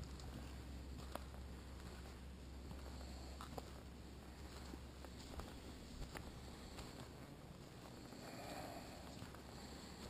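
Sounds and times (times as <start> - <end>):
footsteps on forest trail: 0.0 - 10.0
low steady rumble: 0.0 - 10.0.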